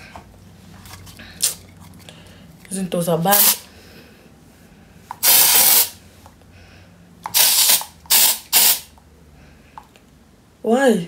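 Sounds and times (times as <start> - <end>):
aerosol spray can hissing: 3.3 - 3.6, 5.2 - 6.0, 7.3 - 8.9.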